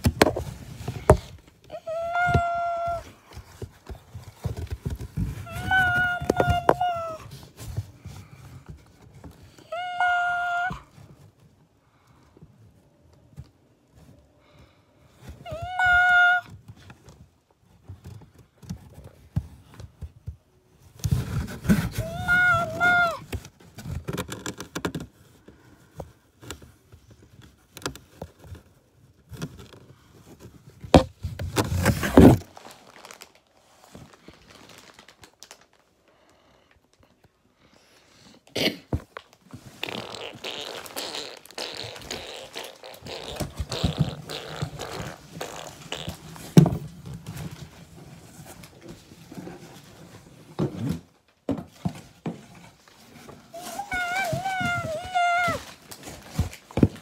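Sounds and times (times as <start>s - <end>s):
knocks and scrapes on cardboard: 0.0s - 1.4s, 29.3s - 32.5s
animal high cry: 22.0s - 23.2s
cardboard box scuffling and rustling: 30.5s - 35.1s, 43.3s - 57.0s.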